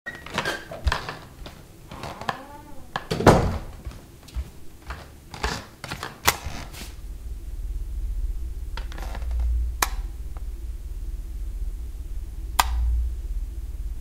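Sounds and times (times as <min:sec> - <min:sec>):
low rumbling drone: 0:06.5 - 0:14.0
light switch clicks: 0:09.8 - 0:10.0, 0:12.6 - 0:12.9.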